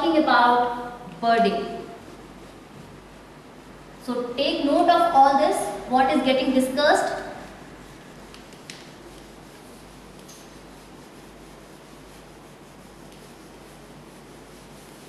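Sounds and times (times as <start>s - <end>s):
duster rubbing whiteboard: 0.0s - 15.0s.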